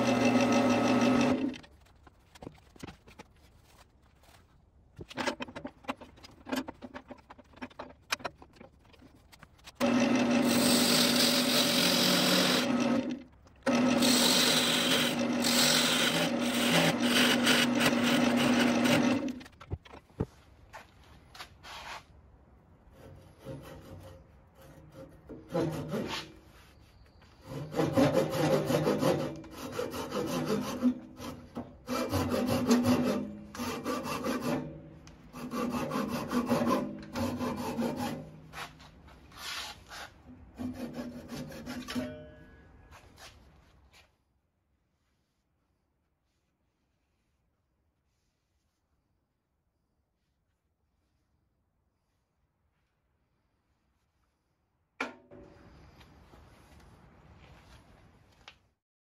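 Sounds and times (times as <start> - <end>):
handsaw sawing wood: 0.0 - 1.6, 9.8 - 19.4, 23.0 - 26.4, 27.4 - 38.8, 39.4 - 42.0
wood lathe humming: 0.0 - 1.6, 9.8 - 19.4
parting tool cutting wood: 0.0 - 3.0, 5.0 - 20.0, 27.4 - 38.7.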